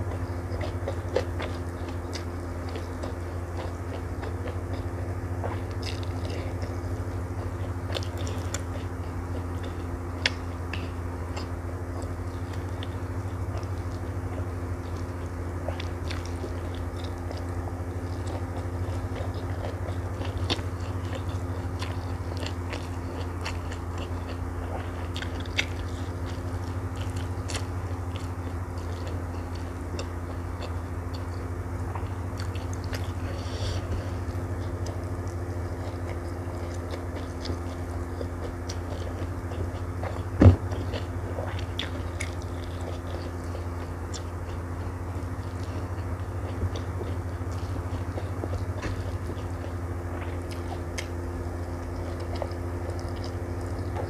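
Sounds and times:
person chewing and biting: 0:00.0 - 0:54.0
steady low hum: 0:00.0 - 0:54.0.

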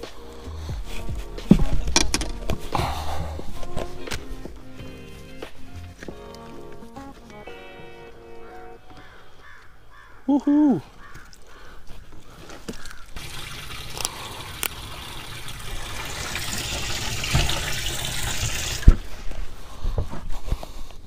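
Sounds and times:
water running and splashing: 0:12.8 - 0:19.2.

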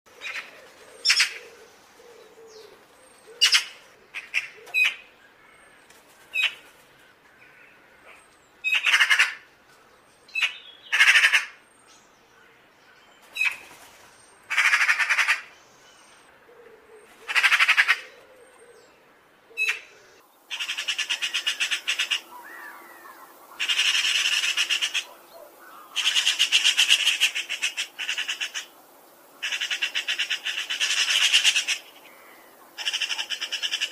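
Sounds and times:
magpie calling and chattering: 0:10.4 - 0:11.6, 0:14.5 - 0:15.5, 0:17.3 - 0:18.1, 0:20.5 - 0:28.7, 0:29.4 - 0:33.9.

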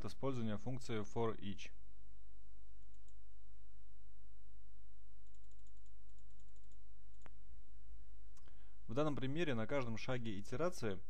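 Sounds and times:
steady low hum: 0:00.0 - 0:11.0
computer clicks: 0:05.2 - 0:07.4.

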